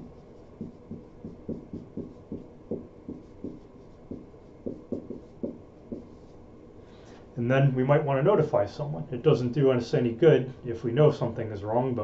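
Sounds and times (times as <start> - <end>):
marker writing on whiteboard: 0.0 - 6.4.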